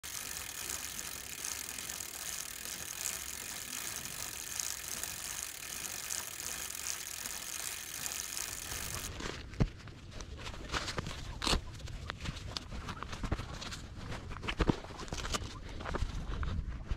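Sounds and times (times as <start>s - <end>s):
bike hub freewheel clicking: 0.0s - 9.2s.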